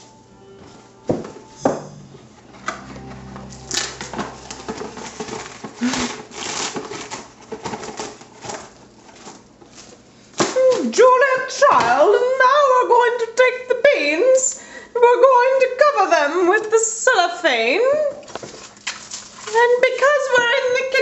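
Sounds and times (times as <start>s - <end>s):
crinkling and rustling: 5.2s - 10.5s, 18.3s - 20.2s.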